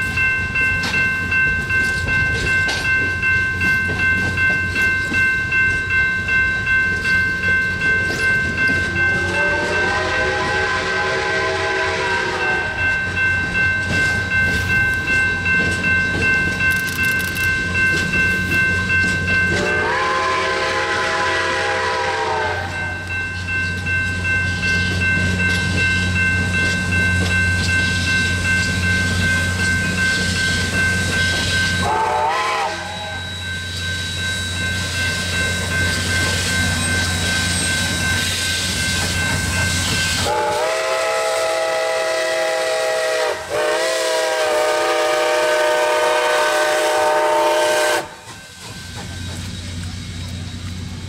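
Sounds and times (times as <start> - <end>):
low chime whistle: 0.0 - 50.9
rumble of steam engines: 0.0 - 51.0
steam locomotive whistles blowing: 8.9 - 13.0, 19.5 - 23.2, 28.8 - 50.8.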